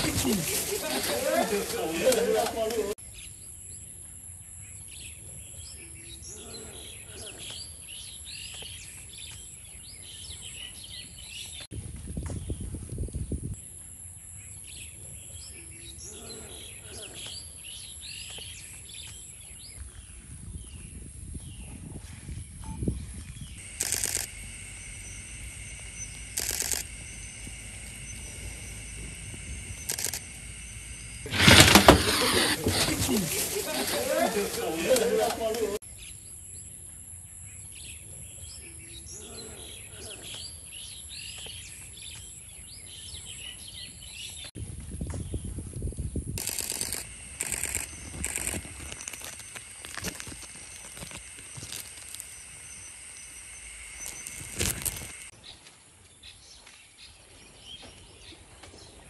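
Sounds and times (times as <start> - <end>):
night insects chorus: 0.0 - 5.1, 23.2 - 44.2, 46.3 - 55.3
loud rasping burst: 23.6 - 34.4, 46.4 - 52.3.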